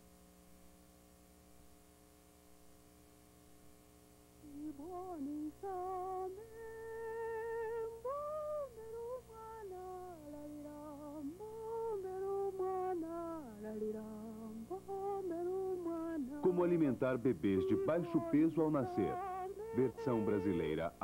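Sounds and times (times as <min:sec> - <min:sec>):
woman humming: 0:04.4 - 0:16.8, 0:17.5 - 0:20.7.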